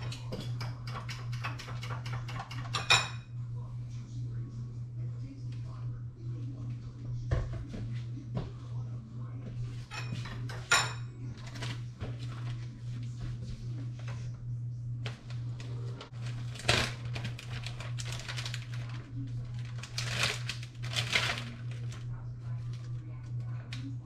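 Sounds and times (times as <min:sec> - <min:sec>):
steady low hum: 0:00.0 - 0:24.0
rustling and crinkling: 0:11.4 - 0:14.4, 0:15.0 - 0:23.6.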